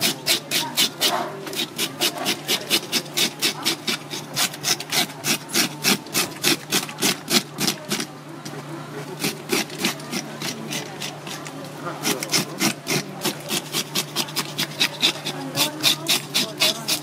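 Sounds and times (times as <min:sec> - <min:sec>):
scaler scraping fish scales: 0:00.0 - 0:08.1, 0:09.1 - 0:17.0.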